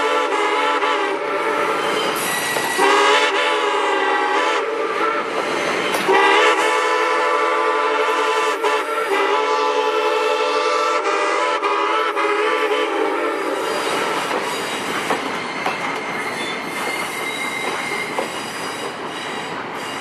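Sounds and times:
steam locomotive whistle blowing: 0.0 - 14.9.

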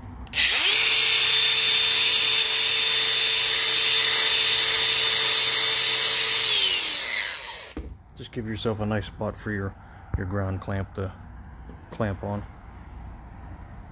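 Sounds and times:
angle grinder grinding steel: 0.3 - 7.8.

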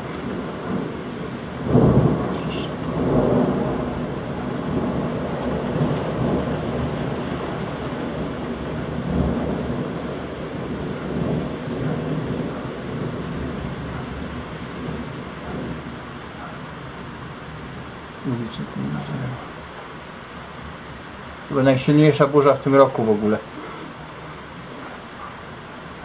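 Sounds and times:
thunder rumbling: 0.0 - 19.6
heavy rain: 0.0 - 26.0.

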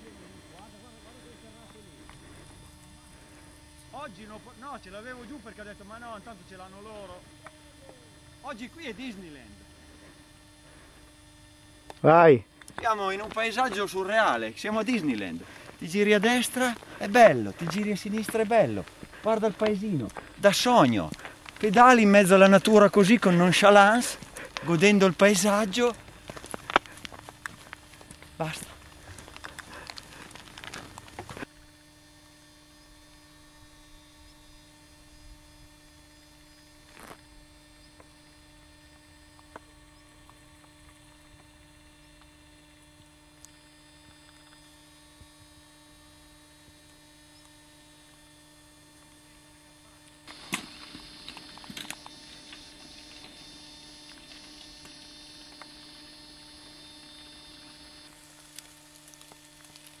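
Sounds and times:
low electrical hum: 0.0 - 60.0
faint clicks and rustles: 25.4 - 31.6, 56.6 - 60.0.

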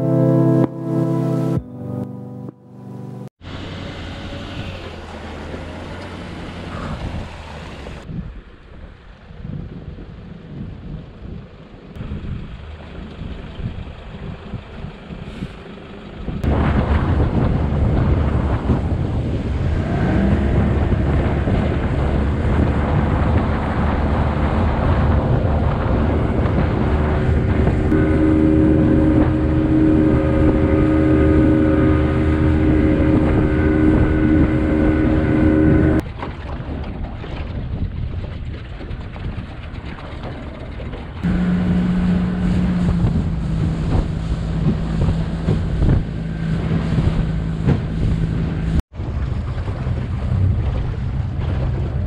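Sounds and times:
water noise: 0.0 - 52.0
rushing wind: 3.4 - 52.0
outboard motor running: 11.2 - 52.0.

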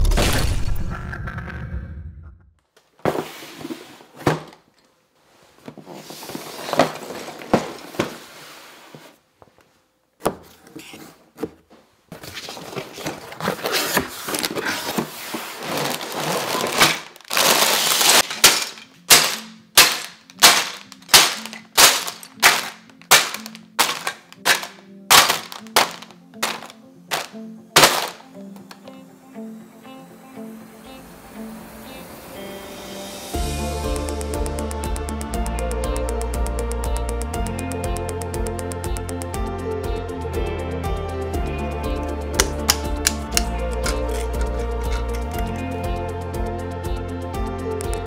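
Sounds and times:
cardboard box being torn open: 12.6 - 18.3
background music with steady beat: 18.6 - 48.0.

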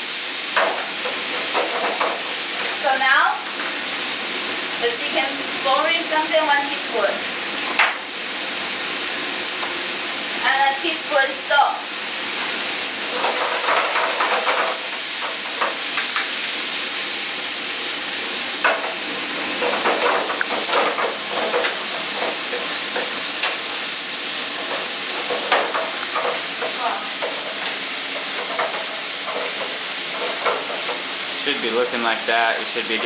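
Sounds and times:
food sizzling in hot oil: 0.0 - 33.0
wooden spatula scraping pan: 24.4 - 31.4.

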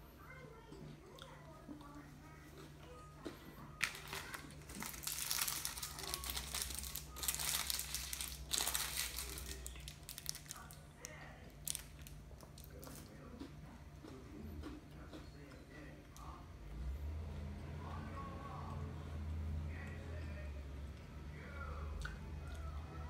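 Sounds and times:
plastic wrapper crinkling: 3.8 - 12.7.

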